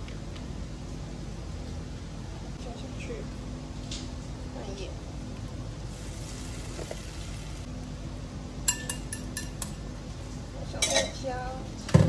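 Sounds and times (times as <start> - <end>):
low steady hum: 0.0 - 12.0
egg hissing in frying pan: 5.8 - 7.7
kitchenware clinking against pan: 8.7 - 9.8, 10.8 - 11.3.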